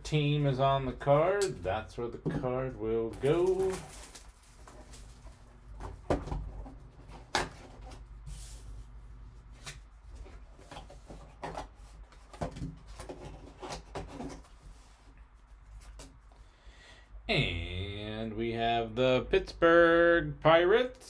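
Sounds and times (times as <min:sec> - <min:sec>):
cardboard rubbing and scraping: 0:12.7 - 0:16.1.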